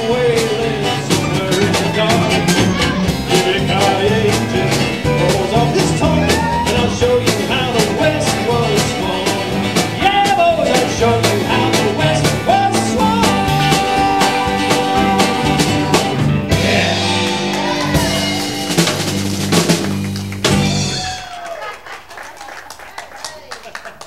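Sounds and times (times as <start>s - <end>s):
country band playing: 0.0s - 22.2s
fiddle melody: 1.9s - 4.3s.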